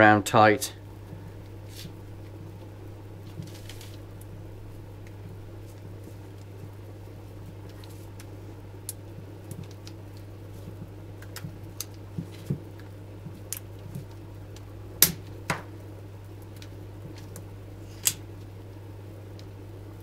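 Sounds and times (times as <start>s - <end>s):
steady low hum: 0.0s - 20.0s
tape clicks and rustles: 3.2s - 4.0s, 7.6s - 15.4s.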